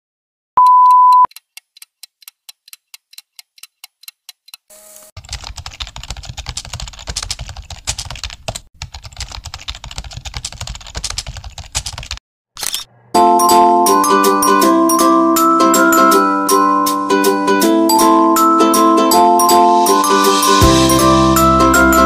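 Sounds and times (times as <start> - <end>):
keyboard typing: 0.6 - 14.6.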